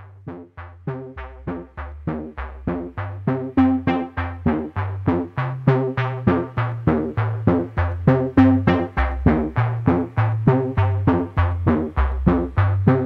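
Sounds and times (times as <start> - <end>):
low bass line: 0.0 - 13.0
short pitched notes: 3.6 - 4.6.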